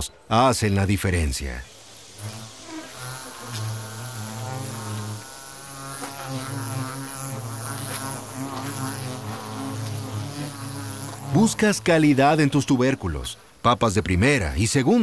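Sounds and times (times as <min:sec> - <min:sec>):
faint high hiss: 0:00.0 - 0:15.0
flying insects buzzing: 0:00.4 - 0:15.0.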